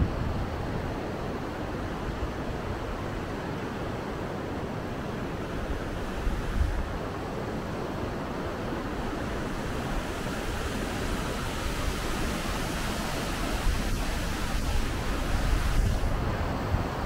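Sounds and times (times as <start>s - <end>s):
wind rumble on microphone: 0.0s - 17.0s
waterfall roaring: 8.9s - 16.2s.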